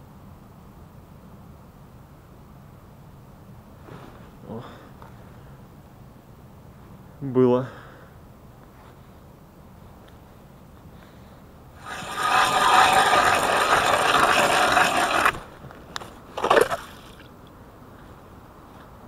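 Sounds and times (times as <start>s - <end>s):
ice auger grinding through ice: 11.8s - 17.2s.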